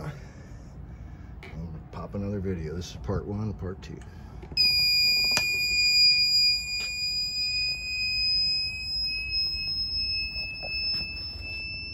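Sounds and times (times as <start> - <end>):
electronic alarm buzzer beep: 4.6 - 11.9.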